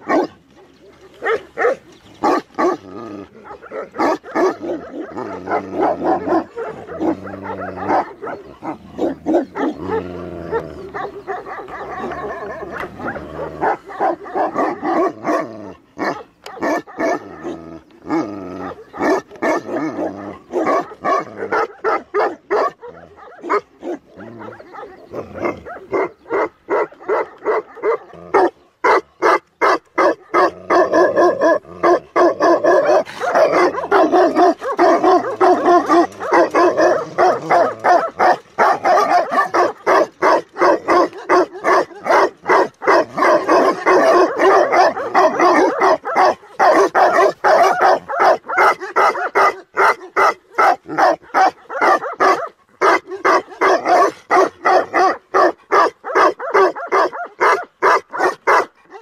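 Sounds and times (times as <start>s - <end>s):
dogs barking: 0.0s - 59.0s.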